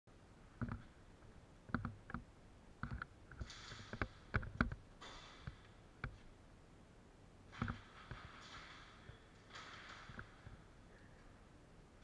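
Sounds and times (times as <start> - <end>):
sharp clicks and knocks: 0.6 - 1.0, 1.7 - 6.3, 7.5 - 11.3.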